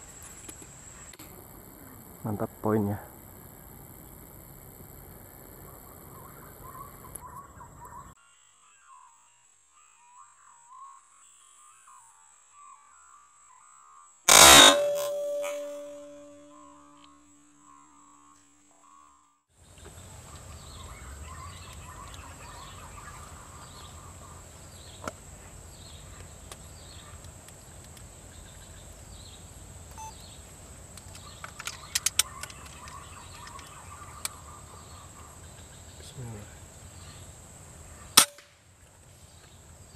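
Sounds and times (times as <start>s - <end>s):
bird chirping: 5.6s - 30.5s, 31.1s - 38.2s
high insect buzz: 13.8s - 19.4s.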